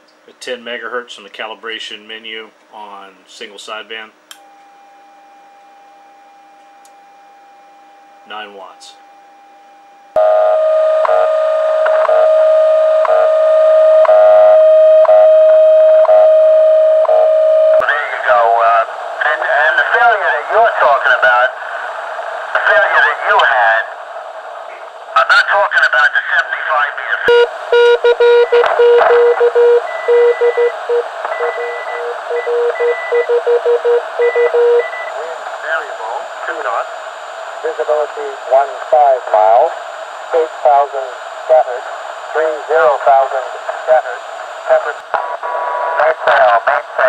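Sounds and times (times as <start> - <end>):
low-pitched morse code tones: 4.4 - 18.0, 27.2 - 36.1
weaker high-pitched morse signals: 4.4 - 21.5, 24.7 - 45.0
steady radio tone: 9.7 - 47.0
radio band noise hiss: 11.0 - 15.3, 17.8 - 27.8, 28.6 - 29.6, 30.6 - 33.0, 34.0 - 47.0.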